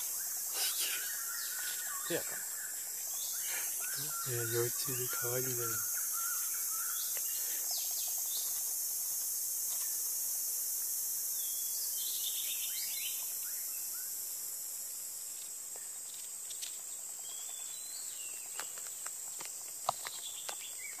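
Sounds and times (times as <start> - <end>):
bird chirps: 0.0 - 8.6
high-pitched insect chorus: 0.0 - 21.0.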